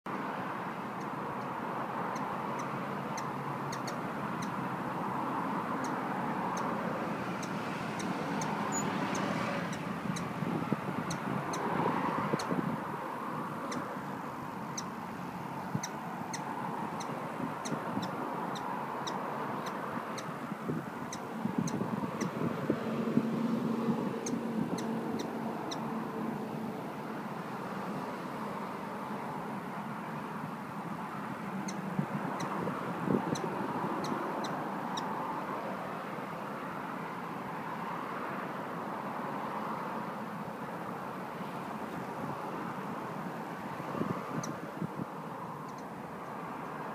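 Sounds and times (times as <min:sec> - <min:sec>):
hummingbird chirps: 0:02.1 - 0:04.6, 0:05.8 - 0:10.4, 0:11.0 - 0:11.7, 0:14.6 - 0:15.0, 0:15.7 - 0:20.3, 0:21.0 - 0:22.4, 0:23.6 - 0:25.9, 0:31.6 - 0:32.6.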